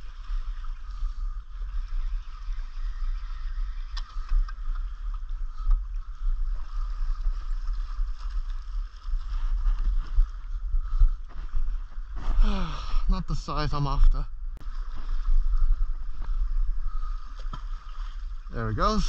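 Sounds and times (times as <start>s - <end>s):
wind on microphone: 0.0s - 13.2s, 14.3s - 18.5s
water lapping against rock: 14.6s - 19.0s.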